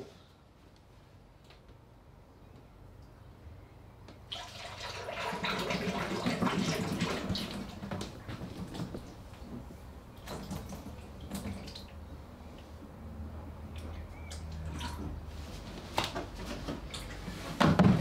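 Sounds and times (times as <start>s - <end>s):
oil pouring and splashing: 4.3s - 7.9s.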